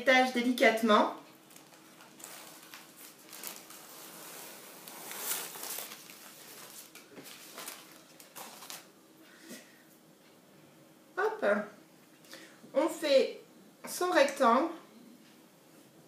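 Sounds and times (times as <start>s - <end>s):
paper rustling and crinkling: 1.3s - 8.9s.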